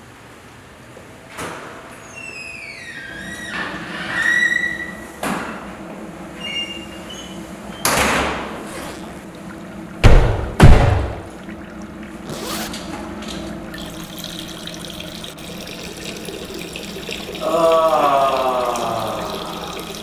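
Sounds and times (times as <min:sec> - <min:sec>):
water running: 0:06.4 - 0:20.0
loud bangs: 0:10.0 - 0:11.4
person's wavering voice: 0:17.4 - 0:20.0.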